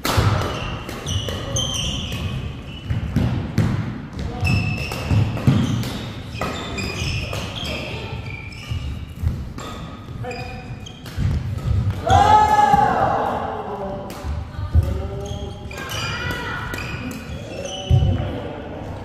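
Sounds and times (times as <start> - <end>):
rackets hitting shuttlecock: 0.0 - 18.2
shoes squeaking on court: 0.4 - 11.9, 14.9 - 18.3.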